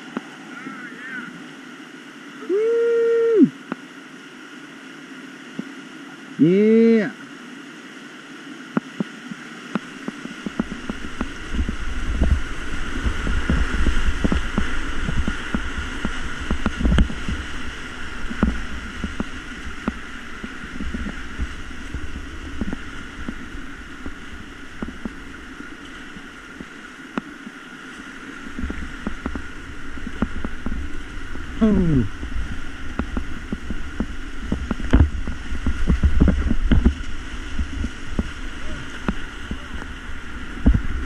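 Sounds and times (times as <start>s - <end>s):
rushing whitewater: 0.0s - 41.0s
water slapping against boat: 9.7s - 41.0s.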